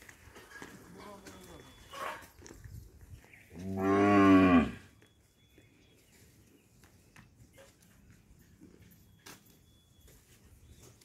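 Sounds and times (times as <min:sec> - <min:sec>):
cow mooing: 0:03.6 - 0:04.9.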